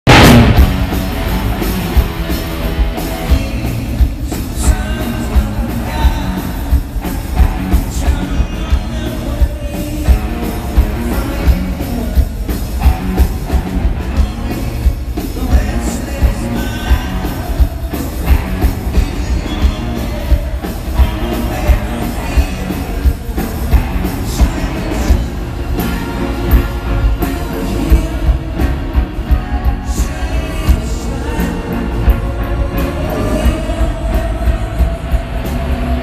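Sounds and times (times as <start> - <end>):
drum kit beat: 0.1 - 36.0
electric guitar: 0.1 - 36.0.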